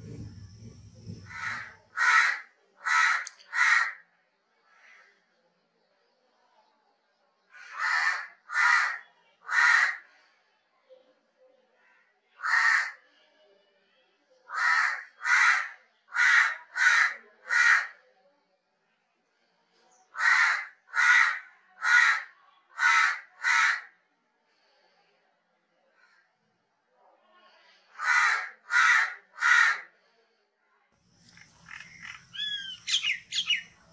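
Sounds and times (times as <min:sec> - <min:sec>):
crow cawing: 0:00.0 - 0:04.0, 0:07.6 - 0:10.0, 0:12.4 - 0:13.0, 0:14.5 - 0:17.9, 0:20.2 - 0:23.9, 0:28.0 - 0:29.9, 0:31.2 - 0:33.9.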